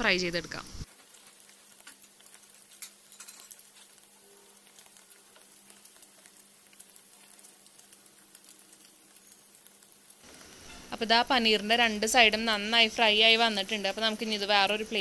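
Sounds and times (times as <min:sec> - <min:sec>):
food sizzling in butter: 0:00.0 - 0:15.0.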